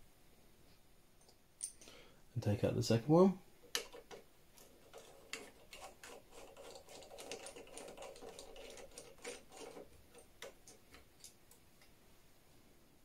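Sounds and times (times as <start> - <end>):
screwdriver turning small screw: 3.7 - 11.6.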